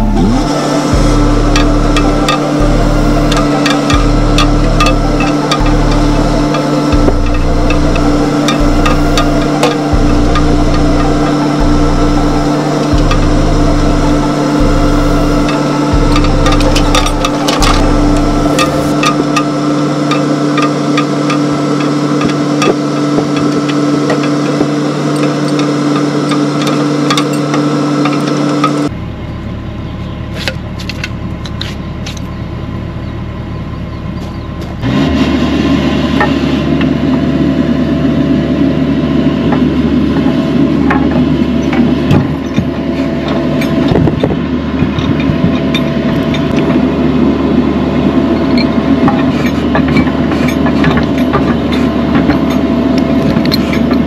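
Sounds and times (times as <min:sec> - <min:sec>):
excavator diesel engine running: 0:00.0 - 0:54.0
metal clanks and knocks: 0:01.0 - 0:28.9, 0:48.4 - 0:54.0.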